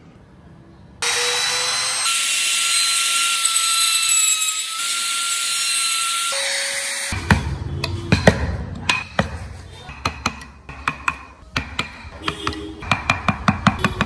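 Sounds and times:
router cutting wood: 1.0s - 7.2s
chisel tapping wood: 7.3s - 14.0s.

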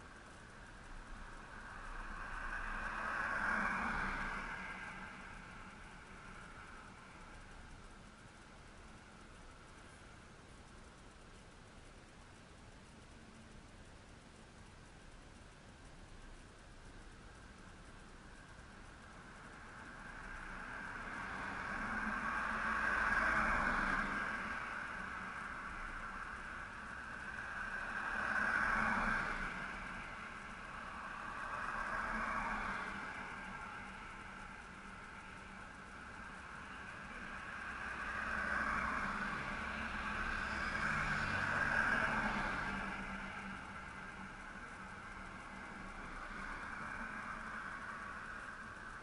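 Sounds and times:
tyre noise on road: 0.0s - 11.3s, 16.1s - 49.0s
car driving past: 1.6s - 7.1s, 19.8s - 49.0s.

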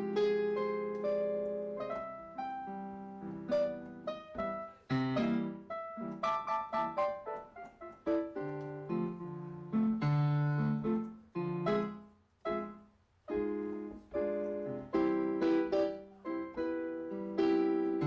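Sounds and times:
slow piano music: 0.0s - 18.0s.

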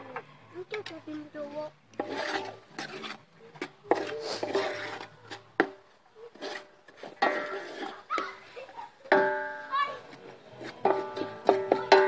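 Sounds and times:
utensil scraping in wok: 1.8s - 12.0s
utensil clanking against metal: 3.9s - 8.3s, 10.6s - 12.0s.

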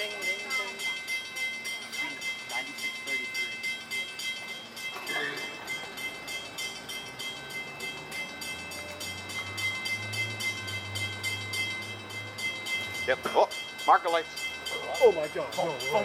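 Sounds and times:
crossing bell ringing: 0.0s - 16.0s.

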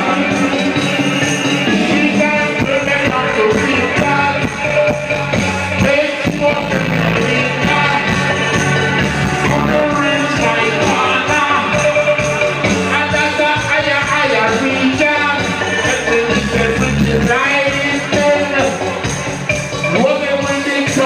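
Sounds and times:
bass-heavy dub reggae music: 0.0s - 21.0s
vocalist singing: 0.0s - 21.0s.

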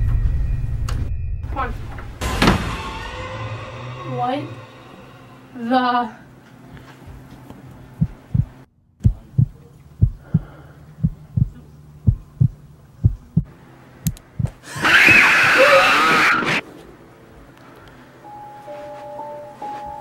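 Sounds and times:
heartbeat thumps: 8.0s - 13.5s, 14.4s - 14.6s
loud scream: 14.7s - 16.6s.

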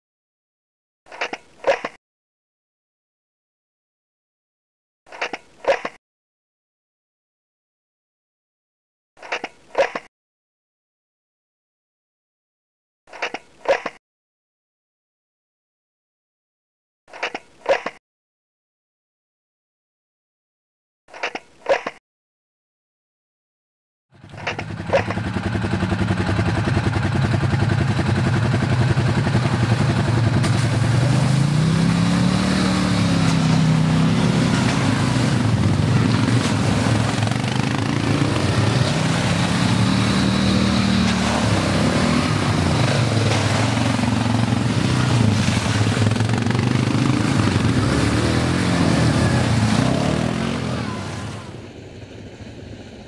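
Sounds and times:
quad bike engines revving: 24.2s - 51.8s.

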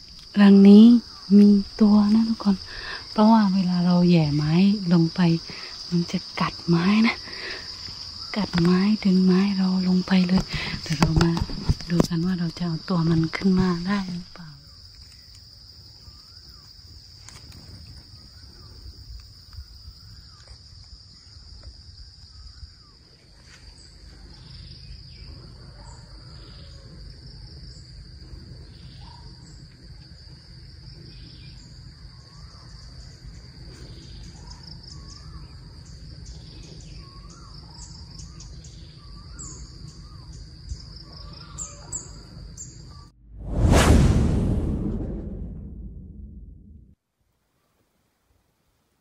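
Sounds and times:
low rumble: 43.2s - 47.0s.

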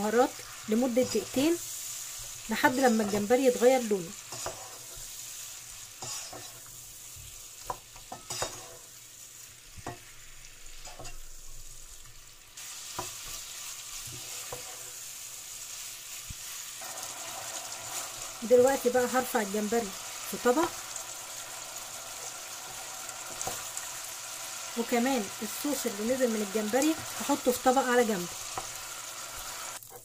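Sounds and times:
shrimp sizzling in oil: 0.0s - 30.0s.

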